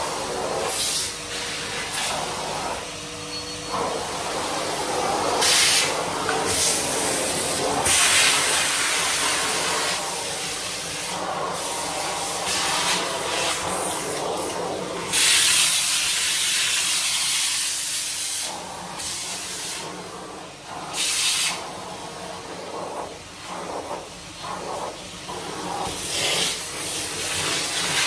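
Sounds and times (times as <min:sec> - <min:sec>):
vacuum cleaner motor hum: 0:00.0 - 0:28.0
vacuum suction hiss: 0:04.0 - 0:19.9.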